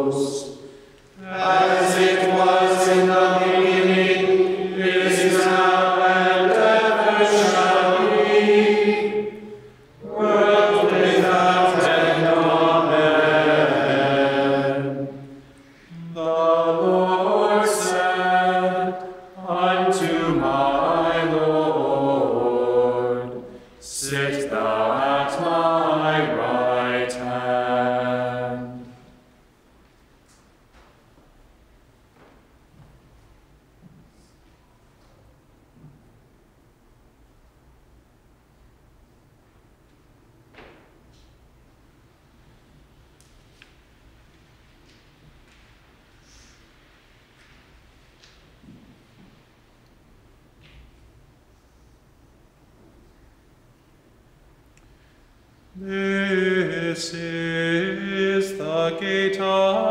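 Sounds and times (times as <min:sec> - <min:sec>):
group of voices chanting: 0:01.2 - 0:15.0.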